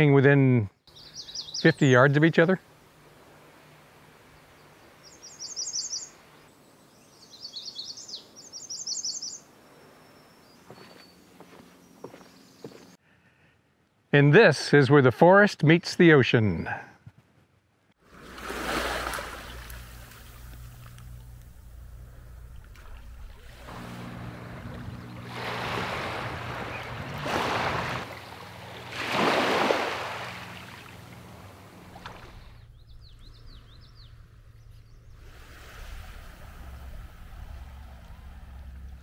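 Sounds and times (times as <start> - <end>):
high bird chirps: 0.9 - 1.8, 5.0 - 6.2, 7.0 - 9.5, 32.4 - 35.2
waves washing over pebbles: 18.1 - 20.3, 23.4 - 31.2
steady low hum: 18.1 - 39.0.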